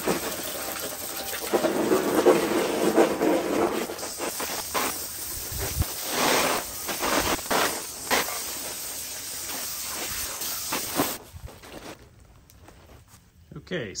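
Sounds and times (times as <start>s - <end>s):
hose water spraying on metal: 0.0s - 11.2s.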